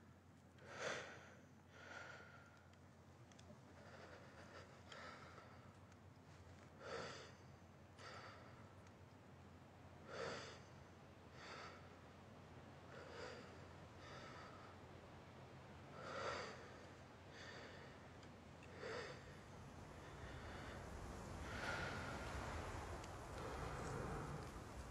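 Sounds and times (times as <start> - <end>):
heavy human breathing: 0.6 - 2.8, 3.6 - 8.8, 12.9 - 14.9, 16.0 - 24.9.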